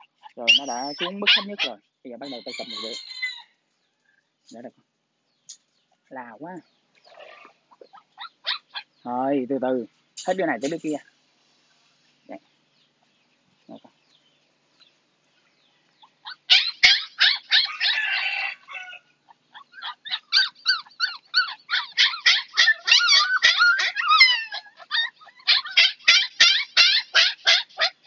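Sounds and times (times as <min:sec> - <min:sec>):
puppy yelping: 0:00.0 - 0:03.4, 0:07.1 - 0:09.0, 0:16.1 - 0:28.0.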